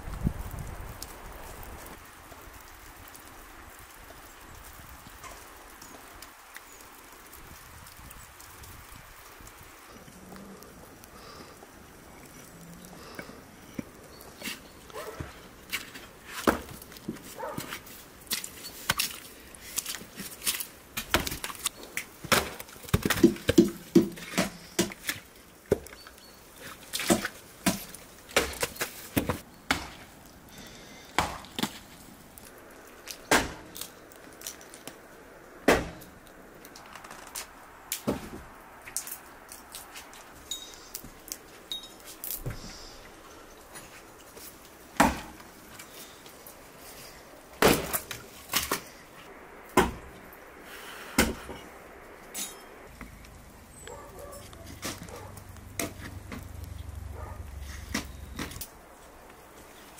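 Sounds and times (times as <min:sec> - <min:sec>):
hatchet chopping wood: 0:22.2 - 0:25.8, 0:27.0 - 0:30.0, 0:31.2 - 0:31.7, 0:33.3 - 0:33.6, 0:35.7 - 0:36.0, 0:45.0 - 0:45.3, 0:49.8 - 0:50.0.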